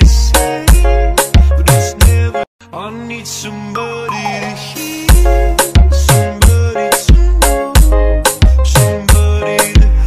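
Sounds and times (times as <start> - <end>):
dance music with heavy bass beat: 0.0 - 2.3, 5.1 - 10.0.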